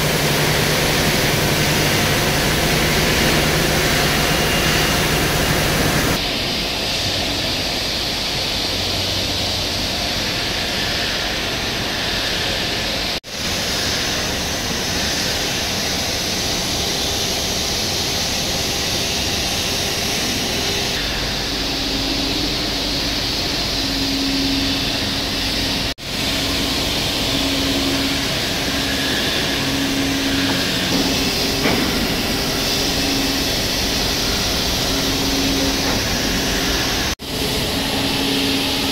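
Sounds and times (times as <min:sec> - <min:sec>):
low hum: 0:00.0 - 0:06.4
milling machine running: 0:00.0 - 0:38.9.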